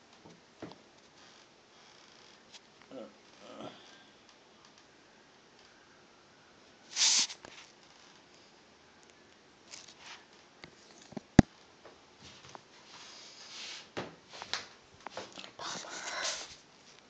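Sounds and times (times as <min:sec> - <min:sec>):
hissing rustle: 0:06.8 - 0:07.8.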